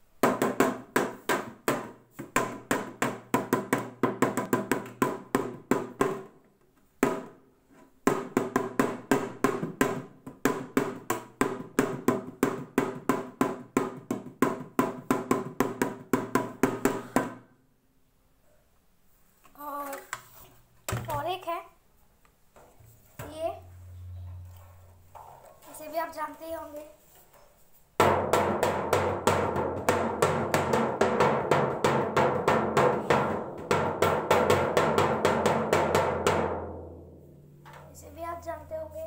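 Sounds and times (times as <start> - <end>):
small hand drum beating: 0.2 - 6.3, 8.0 - 17.4, 28.0 - 39.0.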